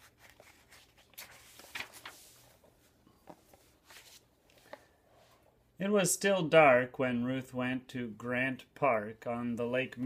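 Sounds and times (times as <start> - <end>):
book page turning: 0.0 - 4.9.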